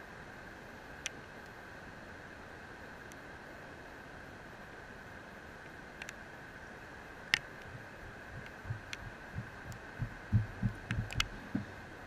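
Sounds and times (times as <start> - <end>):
faint high hum: 0.0 - 12.0
sharp clicks: 7.3 - 11.7.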